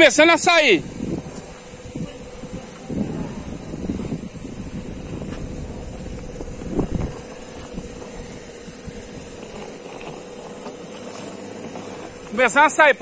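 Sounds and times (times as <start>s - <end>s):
air compressor humming: 0.0s - 13.0s
low rumble: 0.8s - 10.0s.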